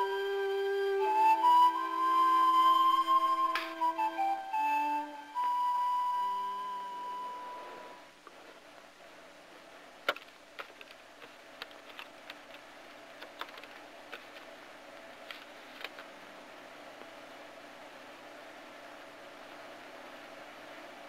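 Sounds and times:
low steady hum: 0:00.0 - 0:21.0
faint clicks and ticks: 0:10.0 - 0:16.1.

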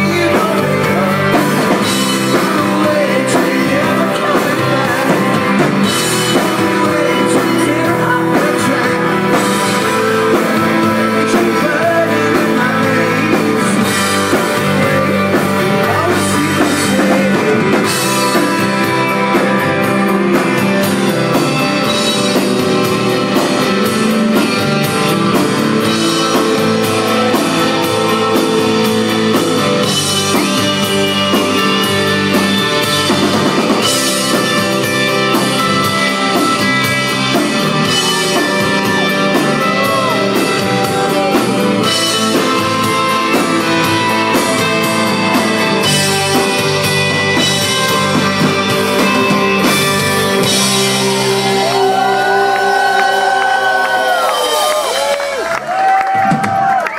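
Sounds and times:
person singing: 0:00.0 - 0:20.6, 0:33.8 - 0:46.6
rock band playing live: 0:00.0 - 0:56.9.

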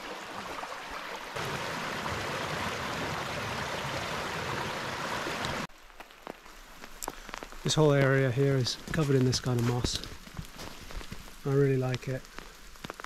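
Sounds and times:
creek babbling over waterfalls: 0:00.0 - 0:05.7.

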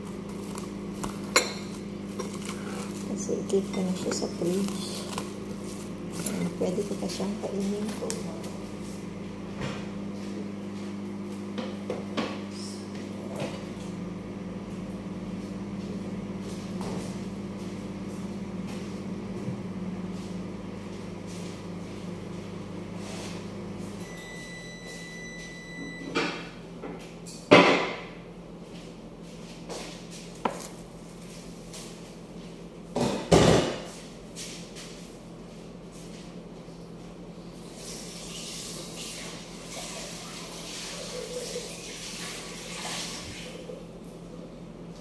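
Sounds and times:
microwave oven humming: 0:00.0 - 0:45.0
long timer beep: 0:24.0 - 0:26.1.

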